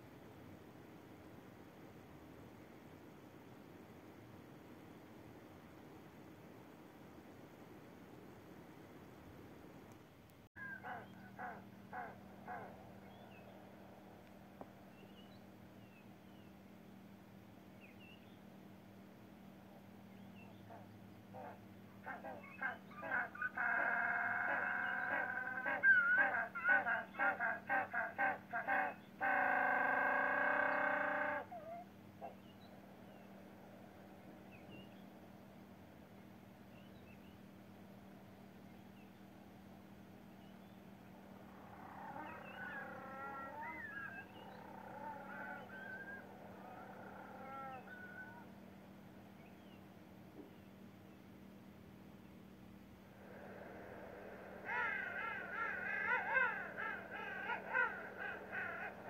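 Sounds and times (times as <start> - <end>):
steady low hum: 0.0 - 59.0
penguin braying call: 10.6 - 12.7, 21.4 - 32.4, 41.7 - 48.5, 54.6 - 59.0
penguins calling: 54.6 - 59.0.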